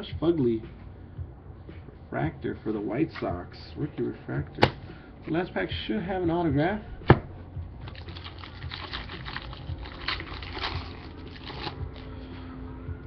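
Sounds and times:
foil wrapper crinkling and tearing: 7.8 - 12.1.

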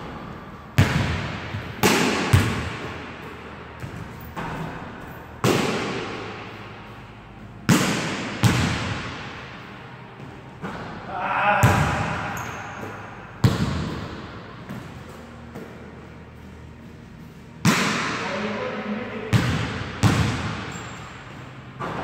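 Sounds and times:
basketball hitting backboard and rim: 0.8 - 6.4, 7.7 - 9.3, 11.6 - 14.9, 19.3 - 21.1, 21.8 - 22.0.

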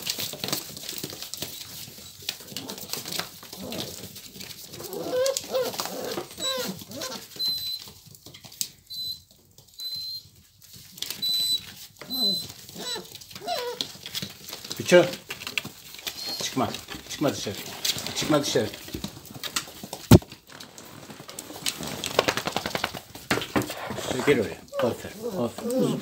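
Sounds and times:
paws scratching and scuffling: 0.0 - 26.0
puppies whining and squeaking: 0.1 - 8.2, 8.8 - 15.1, 15.8 - 16.8, 24.2 - 26.0.

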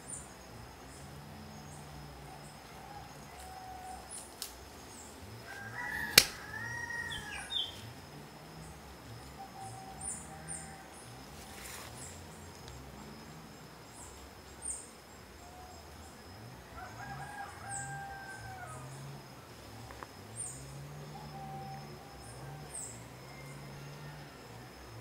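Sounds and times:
small birds chirping: 0.0 - 16.4
drawn-out bird call: 4.9 - 7.9
sharp loud click: 6.1 - 6.4.

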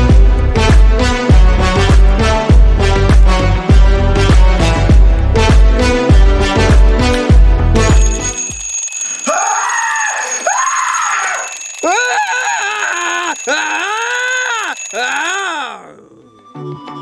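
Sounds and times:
alarm clock ringing: 7.8 - 15.9
man crying out: 9.3 - 16.2.

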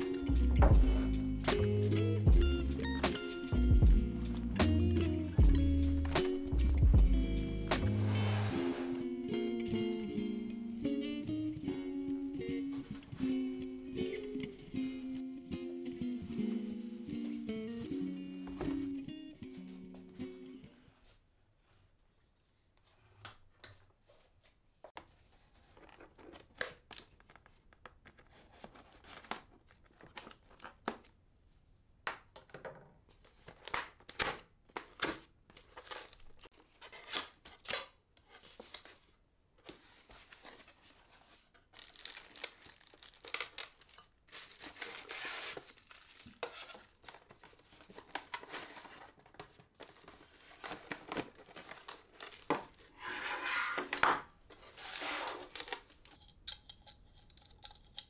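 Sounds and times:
cardboard tearing and rustling: 39.7 - 53.0, 53.8 - 56.0
plastic wrapping crinkling: 40.1 - 53.0, 54.4 - 56.3.

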